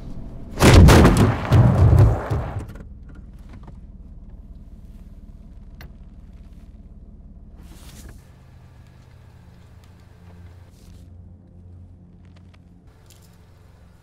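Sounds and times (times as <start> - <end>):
car engine drone and road noise: 0.0 - 14.0
loud impact: 0.6 - 2.7.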